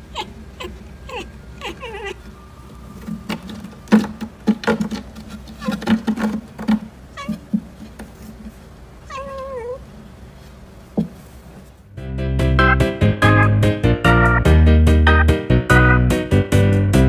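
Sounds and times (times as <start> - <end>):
cat meowing: 0.0 - 2.3, 7.2 - 7.5, 9.0 - 9.8
cat chirping: 0.0 - 2.4, 7.1 - 7.5, 9.0 - 9.8.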